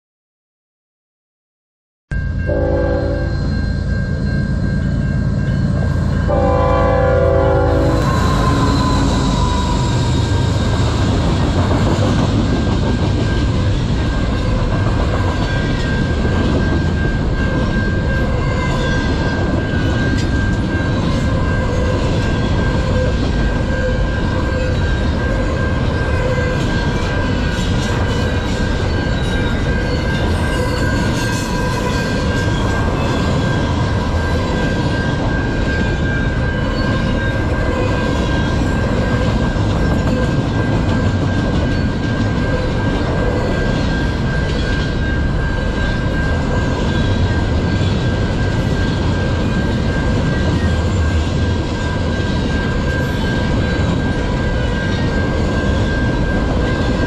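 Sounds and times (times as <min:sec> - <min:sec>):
crossing signal bell ringing: 0:02.1 - 0:57.0
train rumble and wheel clatter: 0:02.1 - 0:57.0
train horn blasts: 0:02.4 - 0:03.4, 0:06.3 - 0:10.4.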